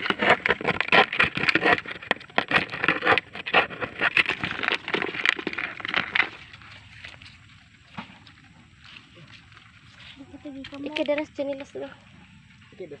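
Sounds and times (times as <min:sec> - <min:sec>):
crabs scrabbling in plastic bucket: 0:00.0 - 0:08.1.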